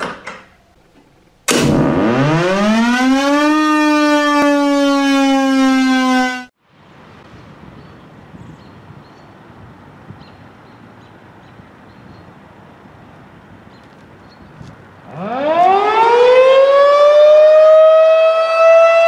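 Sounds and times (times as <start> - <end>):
outdoor background noise: 0.0 - 19.0
siren wailing: 1.8 - 6.5, 15.1 - 19.0.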